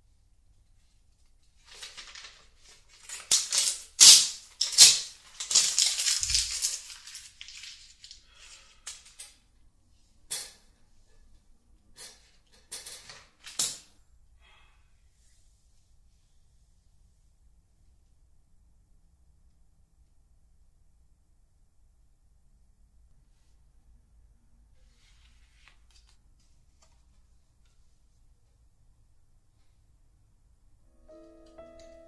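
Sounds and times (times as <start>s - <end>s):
paper rustling and crumpling: 1.4s - 9.0s.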